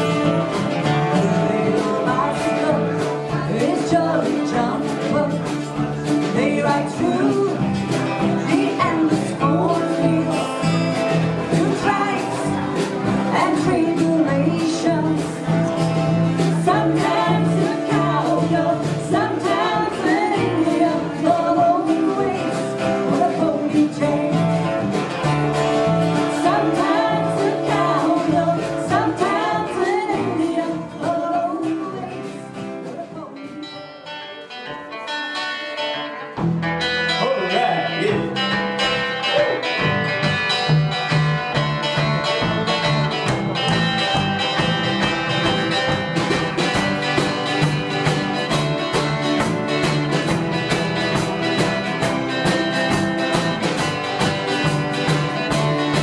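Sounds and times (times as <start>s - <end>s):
double bass: 0.0s - 34.0s, 36.0s - 56.0s
acoustic and electric guitars: 0.0s - 56.0s
women singing: 0.5s - 15.6s, 16.3s - 24.8s, 26.2s - 33.7s.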